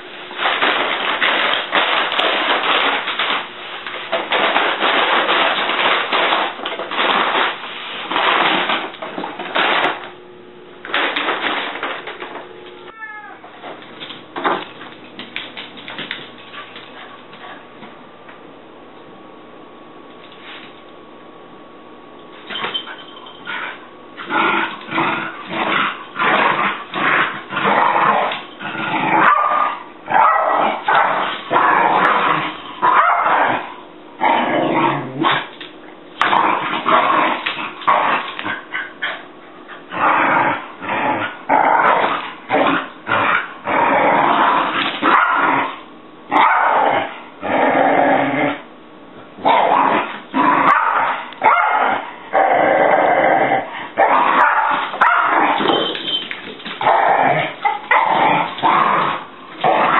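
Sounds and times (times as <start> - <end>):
dog growling and yapping: 23.5 - 35.6, 36.2 - 48.7, 49.4 - 59.9.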